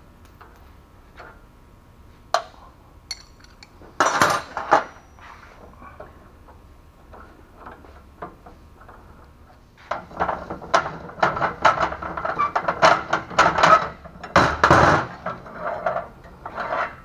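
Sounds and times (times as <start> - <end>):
metal clanks and knocks: 9.9 - 17.0.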